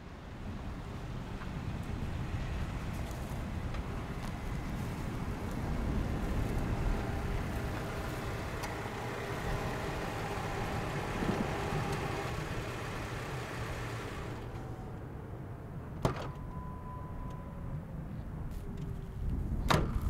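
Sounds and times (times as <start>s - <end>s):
car engine rumbling: 0.0s - 16.0s.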